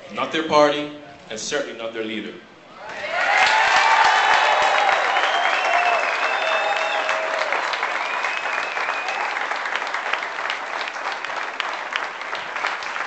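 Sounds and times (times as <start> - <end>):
crowd applauding: 3.0 - 13.0.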